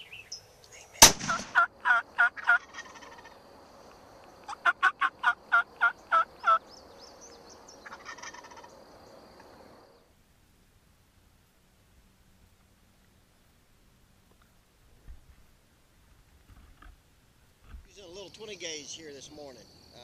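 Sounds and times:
wild turkeys calling: 0:01.0 - 0:09.8
turkey rattling call: 0:01.1 - 0:03.4, 0:04.4 - 0:06.7, 0:07.7 - 0:08.8.

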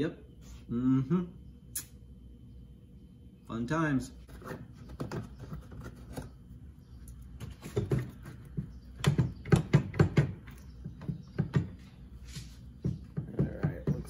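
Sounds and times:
plastic panel clicking and knocking: 0:07.7 - 0:11.8.

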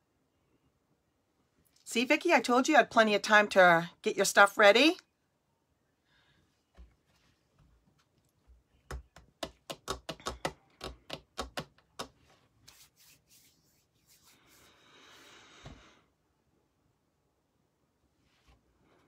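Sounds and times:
sharp taps or clicks: 0:08.9 - 0:12.1
rubbing or rustling: 0:12.0 - 0:14.8.

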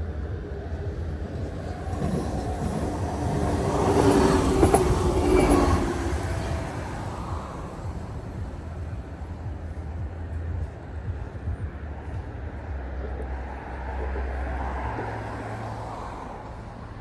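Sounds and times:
low rumble: 0:00.0 - 0:14.2
vehicle passing by: 0:11.8 - 0:17.0.

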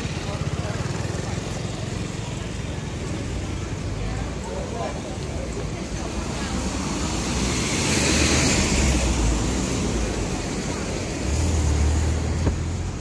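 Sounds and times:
vehicles passing on road: 0:00.0 - 0:13.0.

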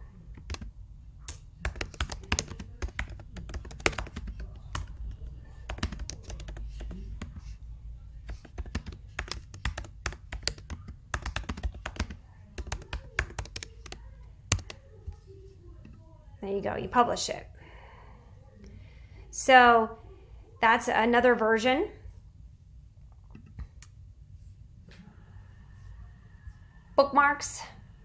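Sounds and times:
typing on a keyboard: 0:00.4 - 0:00.7, 0:01.3 - 0:07.4, 0:08.3 - 0:15.0.

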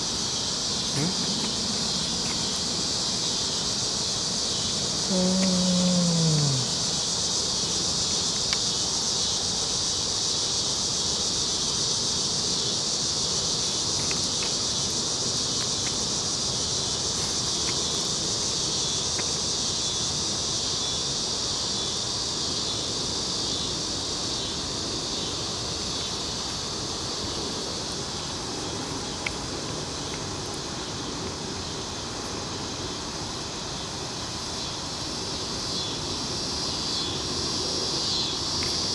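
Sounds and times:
insects chorus: 0:00.0 - 0:38.9
faint ticks: 0:05.1 - 0:06.8.

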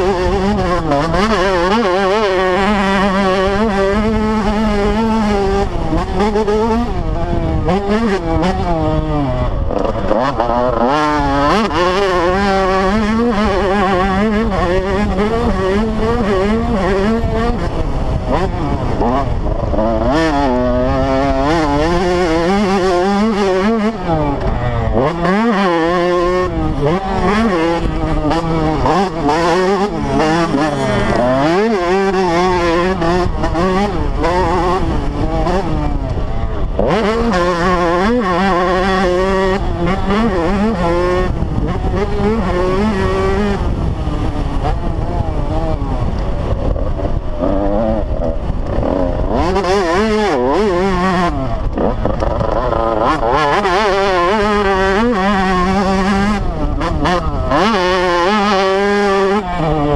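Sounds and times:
dirt bike engine revving: 0:00.0 - 0:59.9
wind buffeting microphone: 0:00.0 - 0:59.9.

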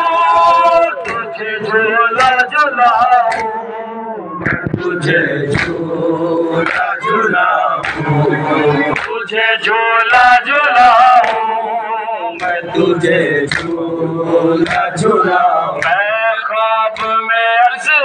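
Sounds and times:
men chanting a lament: 0:00.0 - 0:18.0
hands slapping chests: 0:01.0 - 0:01.3, 0:03.2 - 0:03.5, 0:05.5 - 0:05.8, 0:06.6 - 0:06.9, 0:07.8 - 0:08.1, 0:08.9 - 0:09.2, 0:12.4 - 0:12.6, 0:13.5 - 0:13.8, 0:14.6 - 0:15.0, 0:15.8 - 0:16.0.

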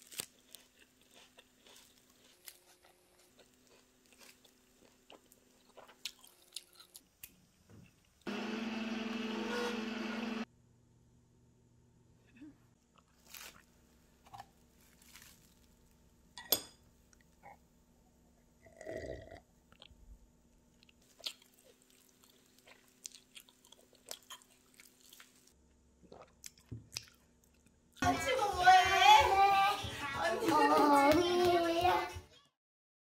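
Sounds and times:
crunchy chewing: 0:00.0 - 0:08.2, 0:20.8 - 0:25.5.

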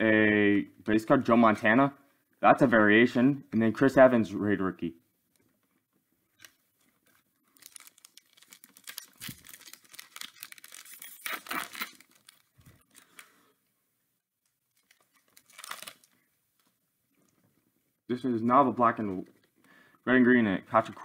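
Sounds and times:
card pack wrapper tearing: 0:07.5 - 0:13.4, 0:14.7 - 0:16.2.

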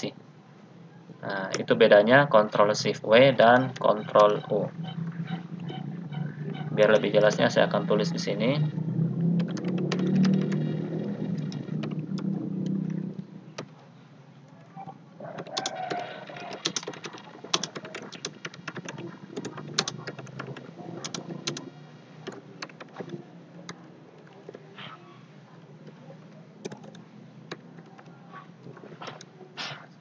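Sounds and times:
typing on computer keyboard: 0:09.4 - 0:12.8, 0:15.3 - 0:24.6, 0:26.6 - 0:29.3.

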